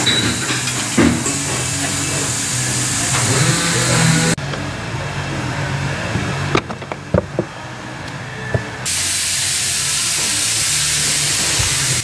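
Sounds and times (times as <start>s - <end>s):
steady hiss: 0.0s - 4.3s, 8.9s - 12.0s.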